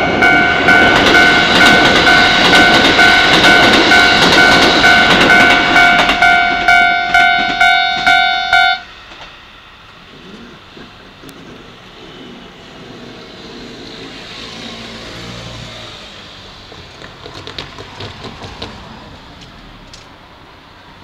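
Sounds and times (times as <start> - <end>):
electric train motor hum: 0.0 - 21.0
wheel clacks over rail joints: 16.6 - 20.2.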